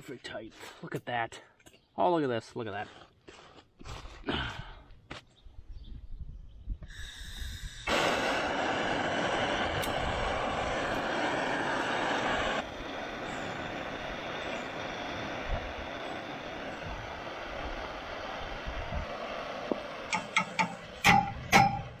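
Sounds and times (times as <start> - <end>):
gas torch hissing: 6.8 - 22.0.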